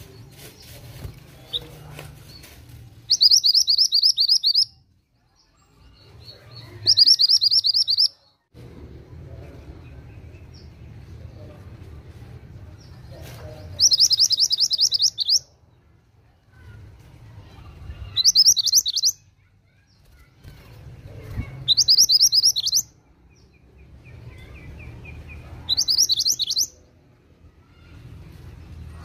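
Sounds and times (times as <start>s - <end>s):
songbird trilling: 3.1s - 4.7s, 6.7s - 8.2s, 13.8s - 15.5s, 18.1s - 19.2s, 21.6s - 22.9s, 25.7s - 26.8s.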